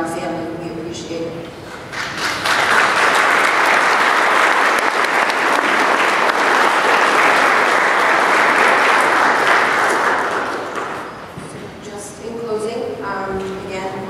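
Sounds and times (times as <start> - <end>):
audience applauding: 1.7 - 11.4.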